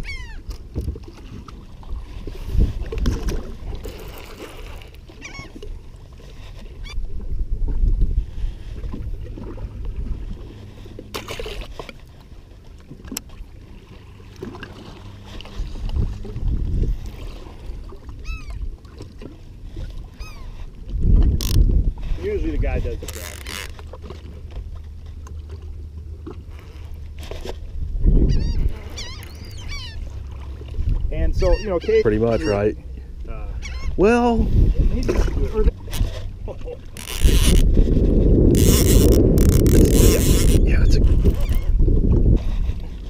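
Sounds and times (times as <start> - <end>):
water lapping against boat hull: 0.0 - 43.0
wind rumbling on microphone: 0.0 - 43.0
short bird calls: 28.3 - 30.0, 33.5 - 34.0.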